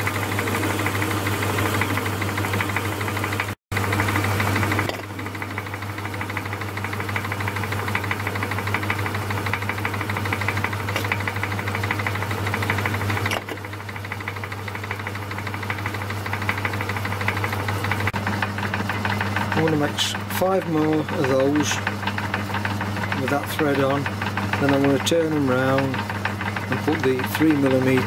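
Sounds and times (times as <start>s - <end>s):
lathe running: 0.0s - 28.0s.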